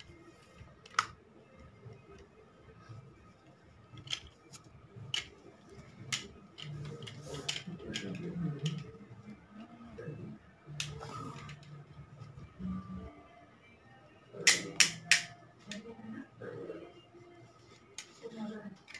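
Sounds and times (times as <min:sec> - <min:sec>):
low pitched hum: 0:04.6 - 0:17.8.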